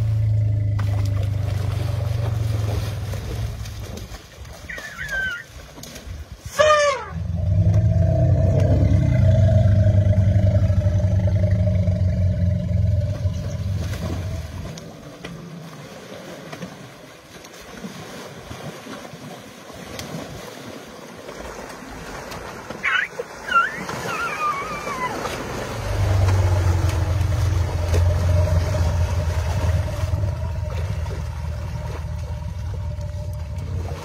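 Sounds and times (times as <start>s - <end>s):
loud low rumble with hum: 0.0s - 3.9s, 7.2s - 14.7s, 25.8s - 34.0s
river water flowing: 0.0s - 6.5s, 7.1s - 34.0s
elephant squealing: 4.7s - 5.5s, 6.6s - 7.2s, 22.8s - 25.4s.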